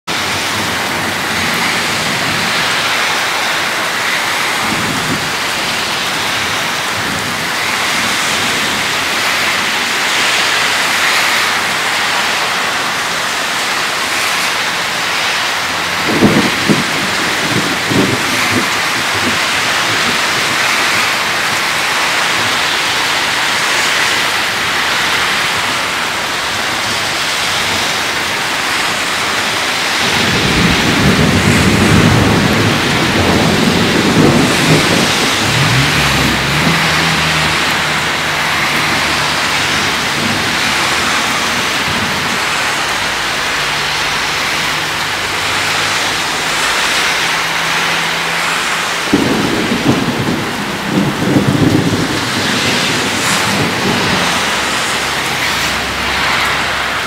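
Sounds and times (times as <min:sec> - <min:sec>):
heavy rain: 0:00.0 - 0:57.0
thunder rolling: 0:00.1 - 0:28.1, 0:29.0 - 0:57.0
loud thunderclap: 0:15.8 - 0:23.7, 0:30.0 - 0:46.0, 0:48.5 - 0:57.0.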